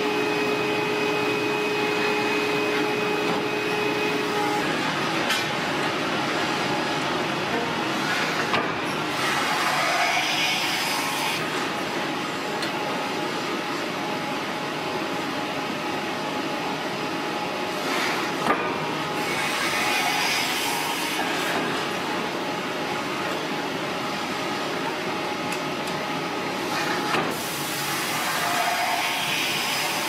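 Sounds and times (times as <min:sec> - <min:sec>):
hydraulic press hissing and rumbling: 0:04.1 - 0:12.5, 0:26.5 - 0:30.0.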